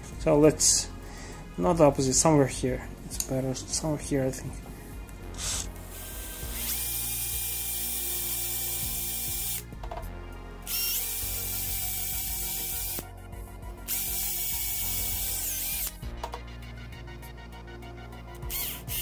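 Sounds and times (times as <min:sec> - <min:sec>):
electric drill whining: 0:05.4 - 0:09.7, 0:10.7 - 0:13.1, 0:13.9 - 0:16.0, 0:18.4 - 0:19.0.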